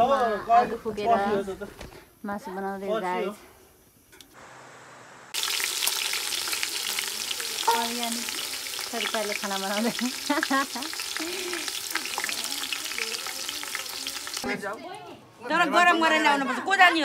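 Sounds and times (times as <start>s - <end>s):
meat and onions sizzling in oil: 4.4s - 14.6s.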